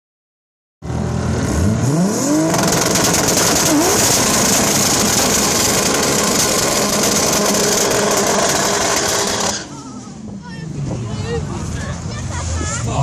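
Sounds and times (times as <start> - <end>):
car engine revving: 0.8 - 9.7
tyres screeching: 2.5 - 9.9.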